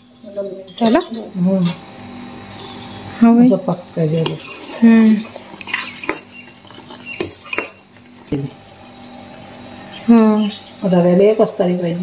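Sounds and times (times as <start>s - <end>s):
spoon stirring in a steel pot: 0.0s - 2.9s, 4.0s - 9.5s.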